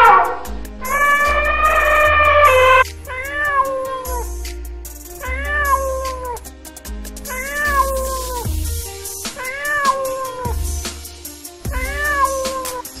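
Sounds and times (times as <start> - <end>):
cat meowing: 0.0 - 4.2, 5.2 - 6.4, 7.3 - 8.0, 9.4 - 10.6, 11.7 - 12.9
background music with beat: 0.0 - 13.0.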